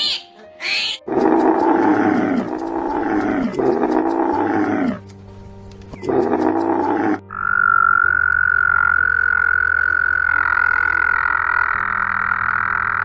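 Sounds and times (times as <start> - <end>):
frog calling: 6.0 - 13.0.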